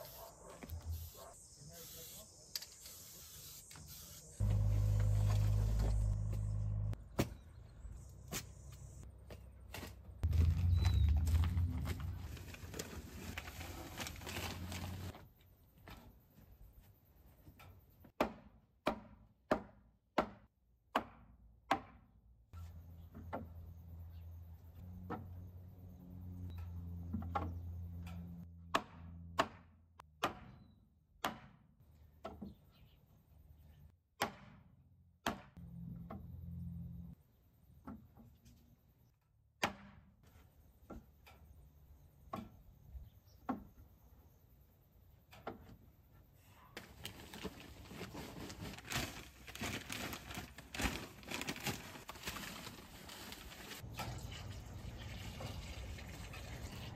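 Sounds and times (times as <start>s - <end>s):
low hum: 4.4s - 7.1s, 10.2s - 12.8s.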